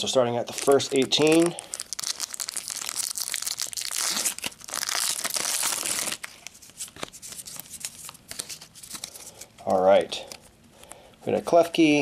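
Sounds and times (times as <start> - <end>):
foil wrapper crinkling and tearing: 0.4 - 9.5
cards clicking and rustling: 4.0 - 9.6.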